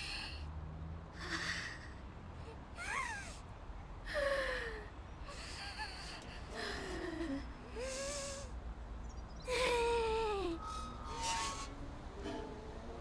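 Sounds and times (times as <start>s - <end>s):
girl gasping and whimpering: 1.2s - 3.4s, 4.1s - 8.6s, 9.5s - 10.6s.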